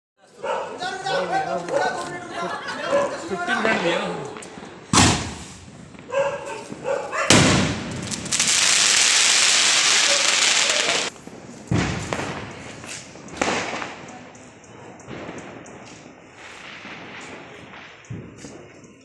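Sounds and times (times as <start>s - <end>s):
firecracker bangs: 4.8s - 14.3s, 15.1s - 18.7s
firework hissing sparks: 7.4s - 14.0s.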